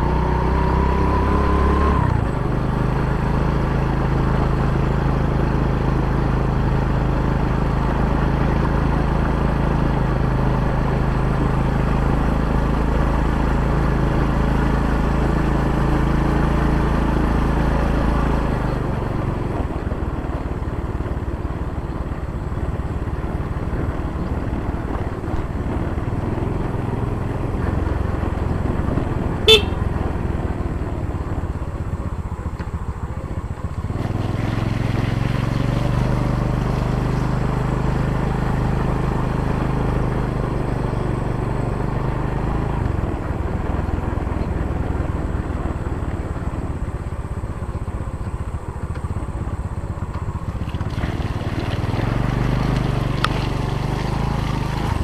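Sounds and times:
motorcycle engine running: 0:00.0 - 0:55.0
wind and road noise: 0:00.0 - 0:55.0
short horn toot: 0:29.5 - 0:29.9.

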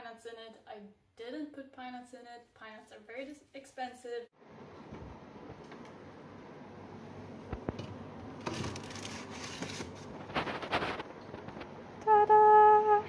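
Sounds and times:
rustling and scraping of a tin: 0:08.4 - 0:11.6.

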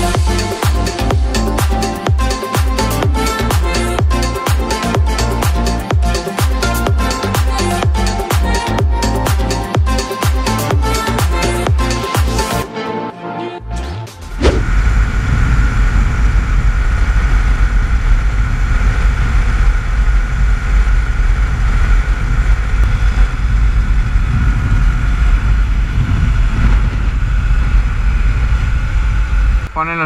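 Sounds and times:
wind rushing on microphone: 0:14.4 - 0:29.8.

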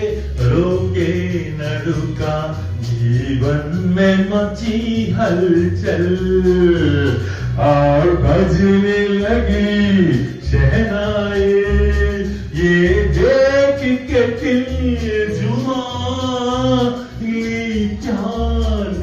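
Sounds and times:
amplified backing music: 0:00.0 - 0:19.0
man singing into microphone: 0:00.0 - 0:19.0.

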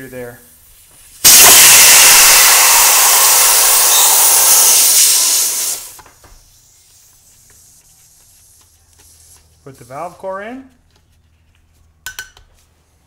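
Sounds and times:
air hissing from tire valve: 0:01.1 - 0:07.7.

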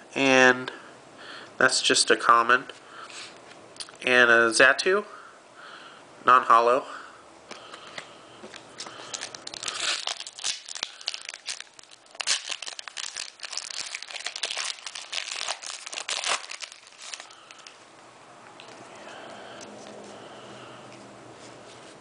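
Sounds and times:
foil wrapper tearing and crinkling: 0:09.0 - 0:17.7.

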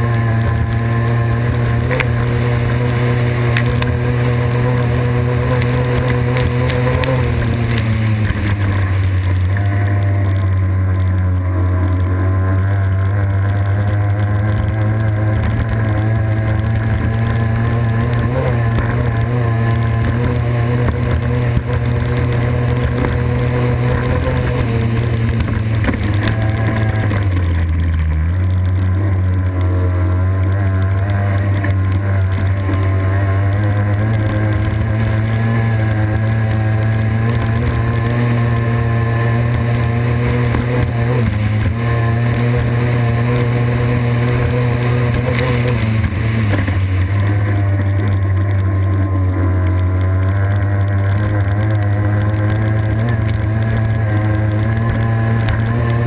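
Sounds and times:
boat engine at high revs: 0:00.0 - 0:56.0.

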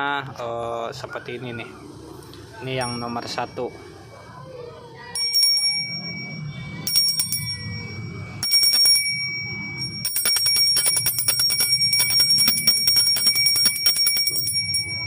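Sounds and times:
brass bell ringing: 0:05.2 - 0:15.0.

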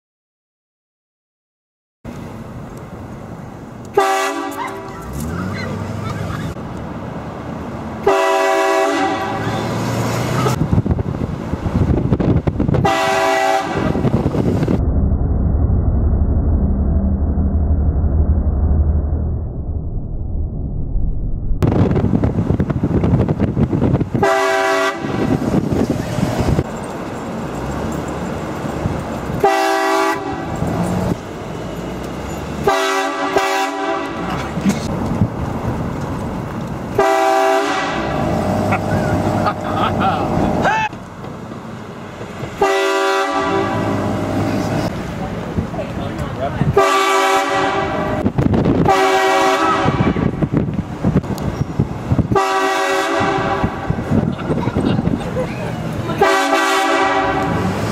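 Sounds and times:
road and wind noise: 0:02.1 - 0:57.9
train horn blasting: 0:03.9 - 0:04.9, 0:08.0 - 0:09.8, 0:12.8 - 0:14.1, 0:24.2 - 0:25.3, 0:29.4 - 0:30.5, 0:32.6 - 0:34.3, 0:37.0 - 0:38.2, 0:42.6 - 0:44.1, 0:46.7 - 0:48.2, 0:48.8 - 0:50.4, 0:52.3 - 0:53.9, 0:56.2 - 0:57.7.

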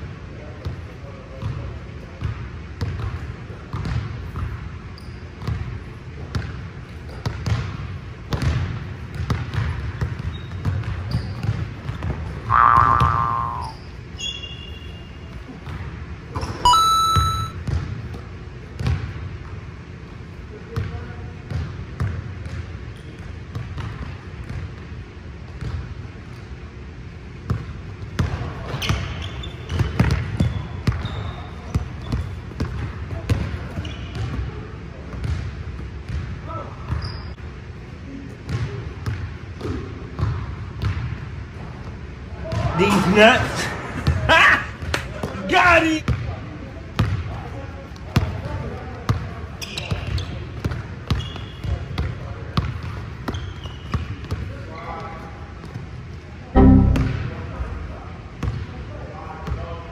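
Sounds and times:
sneakers squeaking on floor: 0:03.8 - 0:05.6, 0:09.2 - 0:15.3, 0:16.4 - 0:17.8, 0:28.7 - 0:32.6, 0:33.3 - 0:34.5, 0:36.9 - 0:37.4, 0:49.6 - 0:50.5, 0:51.1 - 0:54.9
loud pitched sound: 0:12.5 - 0:13.8, 0:16.7 - 0:17.6, 0:56.6 - 0:57.6.

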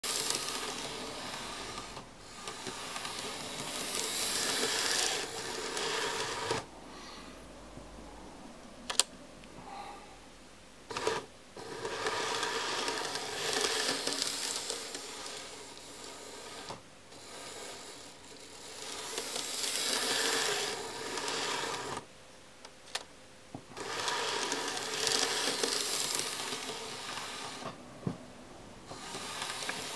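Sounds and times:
model train motor whirring: 0:00.0 - 0:06.7, 0:10.9 - 0:22.1, 0:23.8 - 0:27.8, 0:28.8 - 0:29.9
sharp clicks: 0:08.9 - 0:09.1.

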